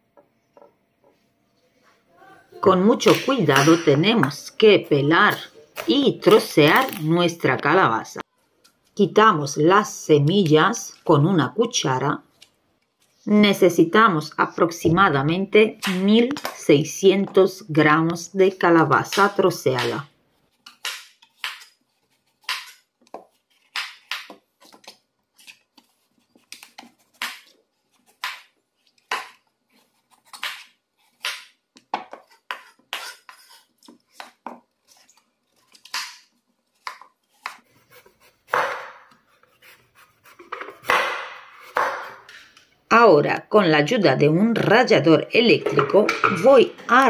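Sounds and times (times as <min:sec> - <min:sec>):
knife scraping board: 0:32.0 - 0:35.2, 0:36.7 - 0:41.9
knife chopping on wooden board: 0:36.8 - 0:42.3.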